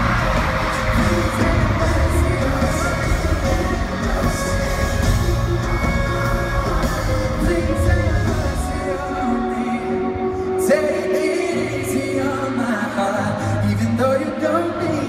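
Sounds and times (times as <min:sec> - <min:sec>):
deep bass: 0:00.0 - 0:09.0
singer over live band: 0:00.0 - 0:15.0.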